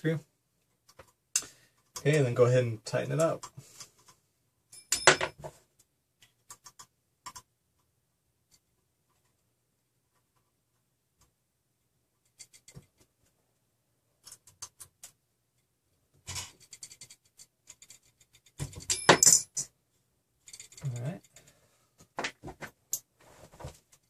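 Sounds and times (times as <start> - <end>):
small metal parts clicking: 20.4 - 21.6.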